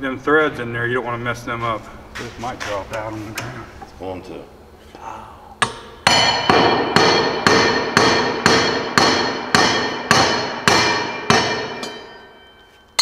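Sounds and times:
hammer ringing on steel rod: 0:05.6 - 0:13.0.

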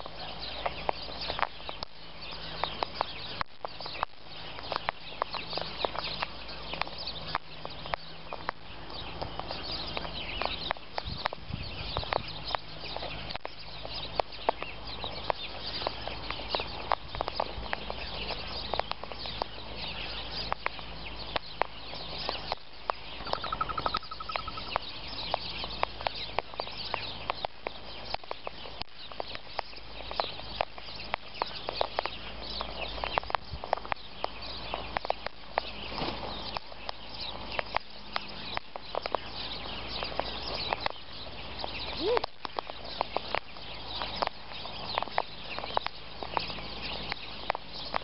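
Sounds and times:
birds pecking and cracking seed: 0:00.0 - 0:48.0
high bird chatter: 0:00.0 - 0:48.0
rapid bird trill: 0:00.0 - 0:48.0.

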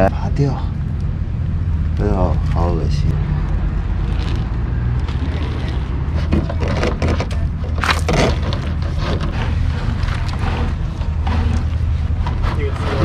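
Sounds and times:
steady low hum: 0:00.0 - 0:13.0
plastic hose scraping and rustling: 0:04.0 - 0:13.0.

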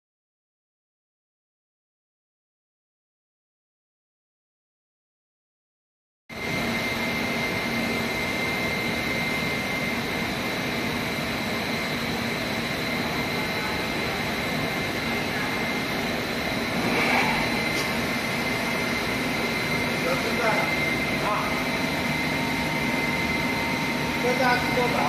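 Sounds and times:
machine drone with high whine: 0:06.3 - 0:25.0.

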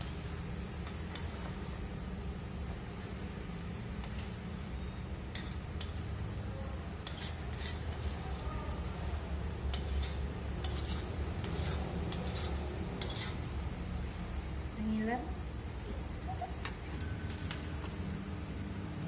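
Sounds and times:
boiling water rumbling on burner: 0:00.0 - 0:15.8
plastic spatula scraping wok: 0:07.0 - 0:08.4, 0:09.6 - 0:13.4.

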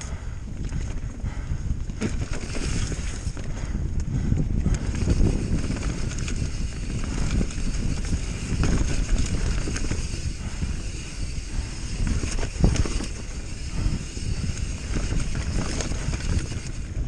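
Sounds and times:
bike knocks and rattles: 0:00.6 - 0:17.0
tyres rumbling on dirt: 0:04.8 - 0:16.6.

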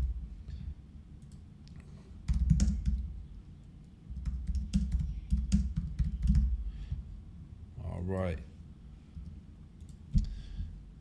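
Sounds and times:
typing on computer keyboard: 0:02.3 - 0:03.1, 0:04.1 - 0:06.6.

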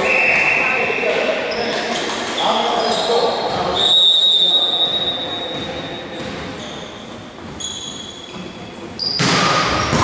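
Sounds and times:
referee's whistle: 0:00.0 - 0:01.7, 0:03.7 - 0:05.6
shoes squeaking on court floor: 0:00.0 - 0:10.0.

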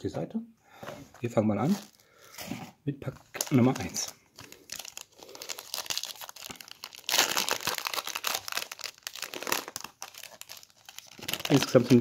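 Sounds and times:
foil wrapper crinkling and tearing: 0:03.4 - 0:12.0.

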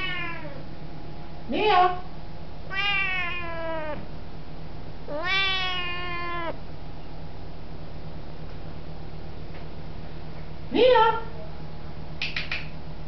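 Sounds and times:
cat meowing: 0:00.0 - 0:00.6, 0:02.7 - 0:04.1, 0:05.1 - 0:06.6.

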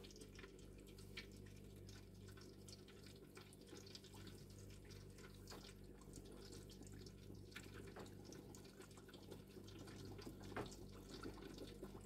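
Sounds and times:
hot oil crackling in fryer: 0:00.0 - 0:12.0.

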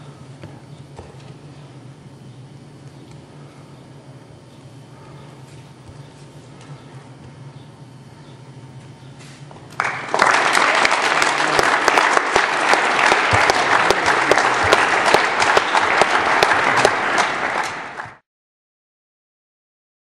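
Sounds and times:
audience applause: 0:09.7 - 0:18.2.

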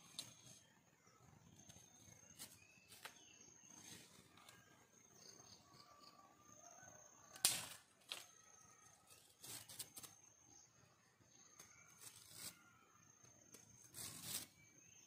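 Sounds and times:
faint bird chirps: 0:00.0 - 0:07.5, 0:08.2 - 0:15.0
dry branch snapping: 0:07.4 - 0:08.3.

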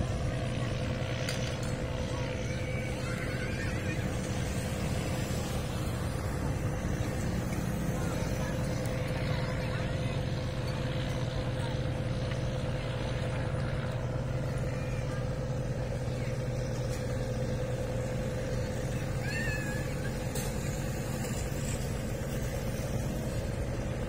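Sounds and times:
boat engine drone: 0:00.0 - 0:24.0
short high wavering cry: 0:19.0 - 0:20.6.

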